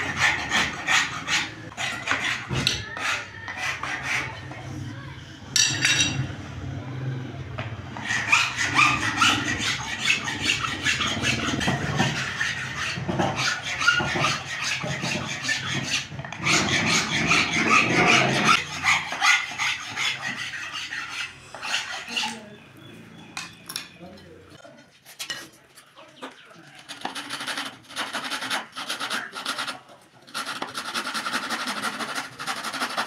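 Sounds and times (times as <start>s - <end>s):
steel blade shaving wood: 0.0s - 4.5s, 8.0s - 22.5s, 26.9s - 33.0s.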